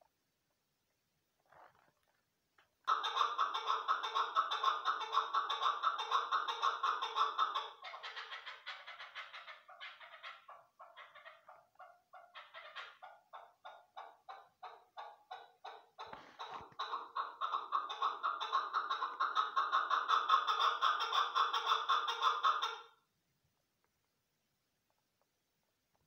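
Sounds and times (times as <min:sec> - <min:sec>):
partridge clucking calls: 0:02.9 - 0:22.9.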